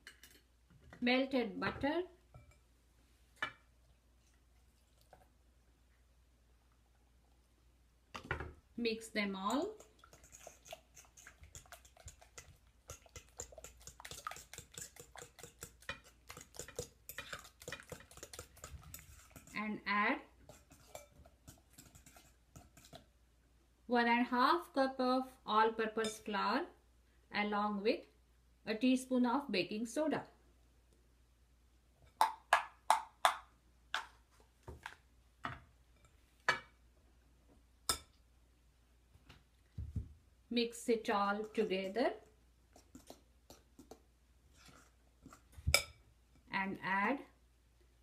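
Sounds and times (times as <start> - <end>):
utensil stirring batter in glass bowl: 9.3 - 23.2, 41.0 - 46.5.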